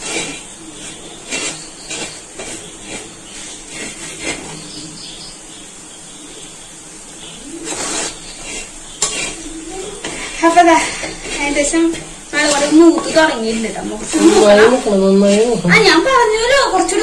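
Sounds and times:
spoon scraping cooking pot: 0:00.0 - 0:04.8, 0:07.5 - 0:16.2.

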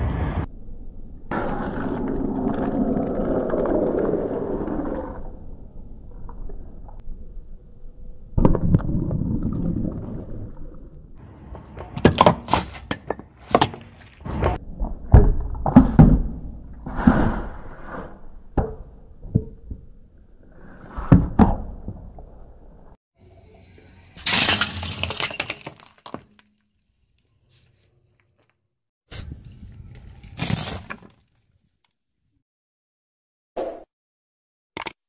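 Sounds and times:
plastic jar cracking under tyre: 0:24.2 - 0:26.6, 0:29.9 - 0:31.4.

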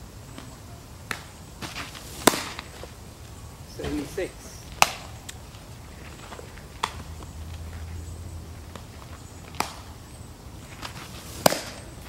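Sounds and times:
baseball smacking into mitt: 0:01.1 - 0:02.9, 0:04.7 - 0:05.4, 0:06.8 - 0:07.3, 0:08.7 - 0:10.0, 0:10.8 - 0:12.0.

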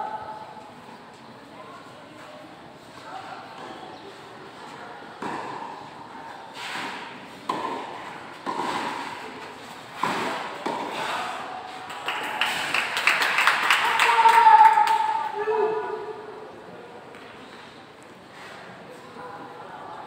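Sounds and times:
tennis ball hit by rackets: 0:06.6 - 0:11.1.

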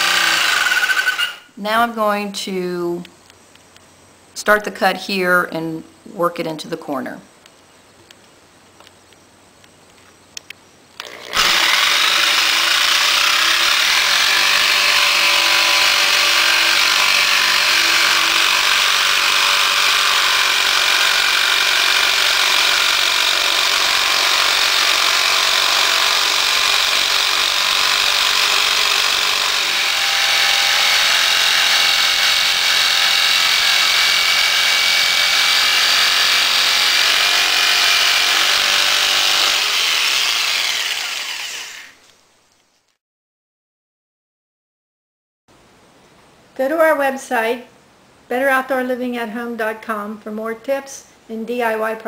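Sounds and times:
jigsaw cutting wood: 0:00.0 - 0:01.4, 0:11.0 - 0:42.0.

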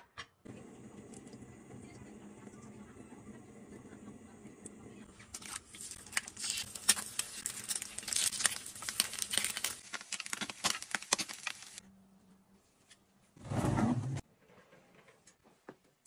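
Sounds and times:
food sizzling in oil: 0:06.4 - 0:11.8.

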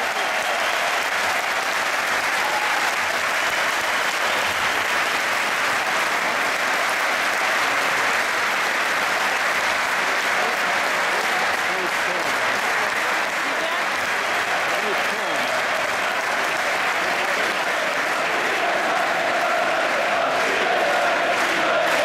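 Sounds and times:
crowd applauding: 0:00.0 - 0:22.0.

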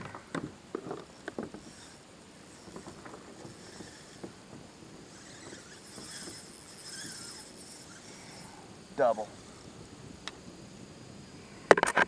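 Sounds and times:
fishing reel ticking: 0:00.8 - 0:09.6.

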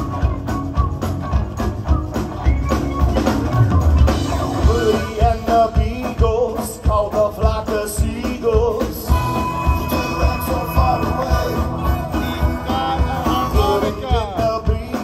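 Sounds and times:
electric guitar: 0:00.0 - 0:15.0
live rock band playing: 0:00.0 - 0:15.0
steady drum beat: 0:00.0 - 0:15.0
person singing: 0:04.4 - 0:15.0.

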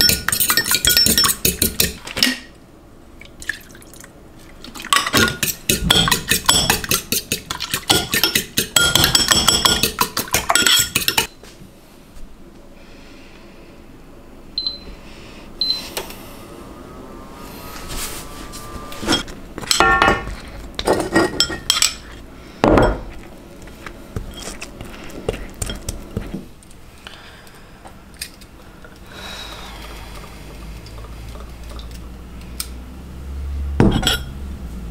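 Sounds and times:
utensil clinking against dish: 0:00.0 - 0:02.4, 0:04.9 - 0:11.3.

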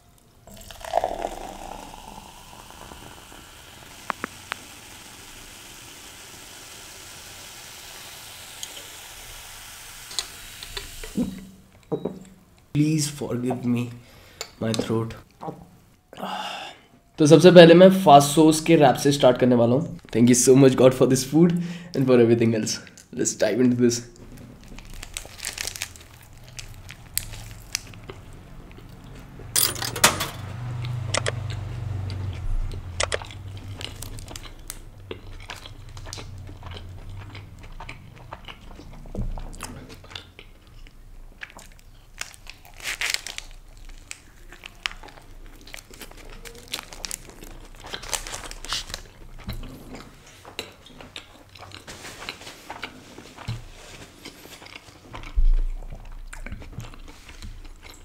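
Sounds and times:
person biting and chewing food: 0:00.5 - 0:04.7, 0:24.2 - 0:29.4, 0:30.6 - 0:58.0
paper wrapper crinkling: 0:24.2 - 0:28.3, 0:41.6 - 0:49.4.

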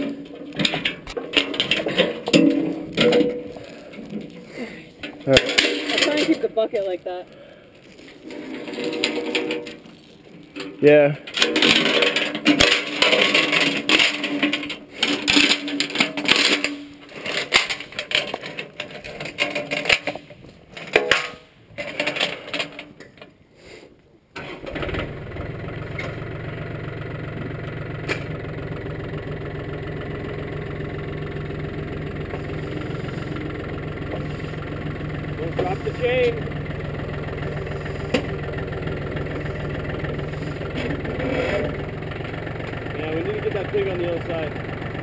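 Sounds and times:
clattering and rustling: 0:00.0 - 0:23.4, 0:29.7 - 0:45.0
tractor diesel engine idling: 0:24.4 - 0:45.0.

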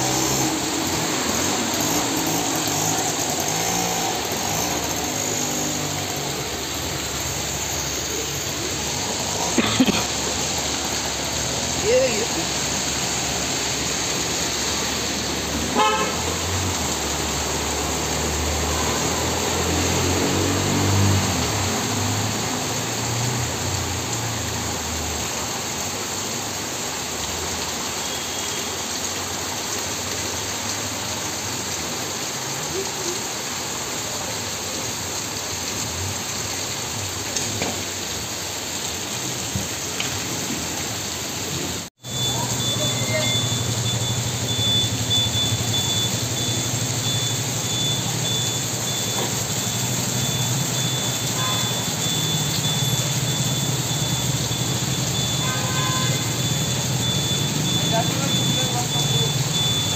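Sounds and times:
heavy rain: 0:00.0 - 0:59.9
car horn toot: 0:15.7 - 0:16.4, 0:51.2 - 0:51.9, 0:55.2 - 0:56.4.

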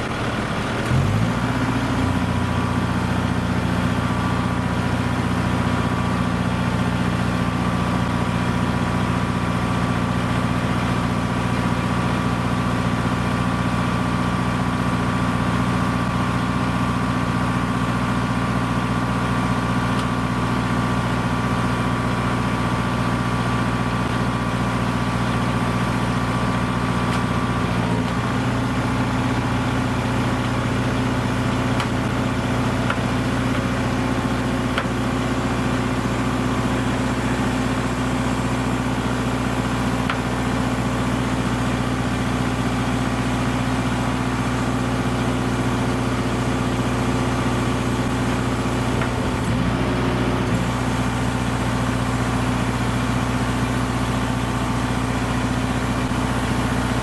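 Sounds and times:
diesel truck engine running: 0:00.0 - 0:57.0
hydraulic arms lifting container: 0:23.8 - 0:43.7, 0:45.1 - 0:57.0.

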